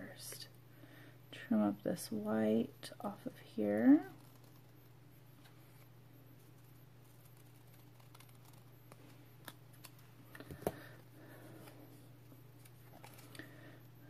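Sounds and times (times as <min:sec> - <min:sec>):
low steady hum: 0:00.0 - 0:14.0
paper sticker rustling: 0:12.5 - 0:13.4.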